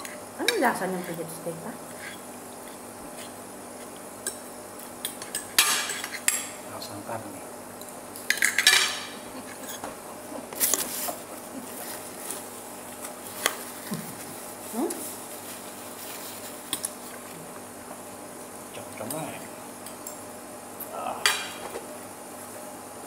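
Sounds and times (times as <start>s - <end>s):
cutlery clinking on plates: 5.0s - 6.6s, 8.3s - 9.9s.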